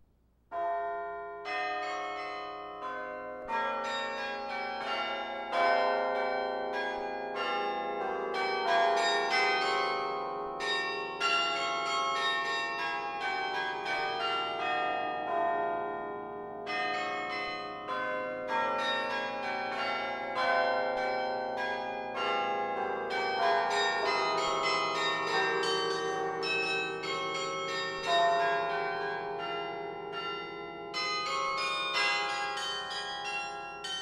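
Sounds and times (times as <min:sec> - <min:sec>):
carillon bells ringing: 0:23.2 - 0:34.0.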